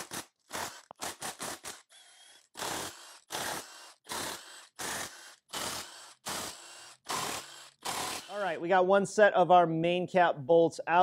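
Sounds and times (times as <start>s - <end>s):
cordless power tool spinning bolts: 0.0s - 8.4s.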